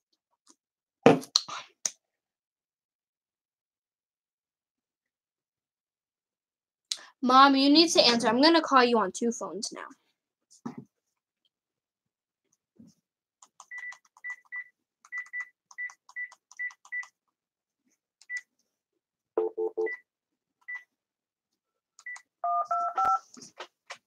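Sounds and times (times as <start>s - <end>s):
phone key beeps: 22.0s - 23.2s
touch-tone dialing beeps: 22.1s - 23.2s.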